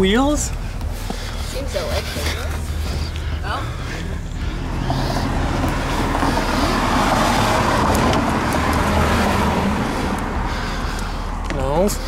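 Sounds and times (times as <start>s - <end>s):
car driving past: 3.6s - 11.5s.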